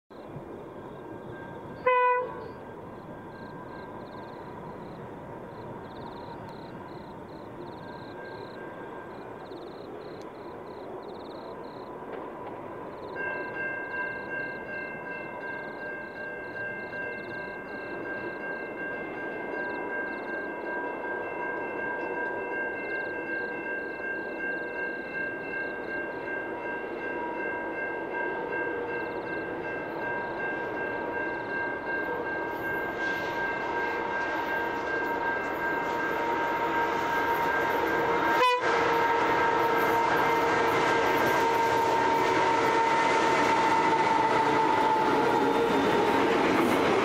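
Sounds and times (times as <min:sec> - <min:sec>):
train engine and wagon noise: 0:00.1 - 0:47.0
train horn blast: 0:01.7 - 0:02.7, 0:32.0 - 0:46.6.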